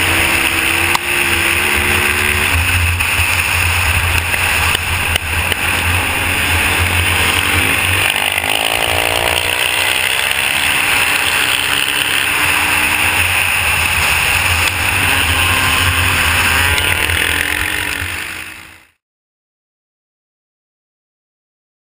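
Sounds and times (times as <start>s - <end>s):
motocross bike engines buzzing: 0.0s - 19.0s.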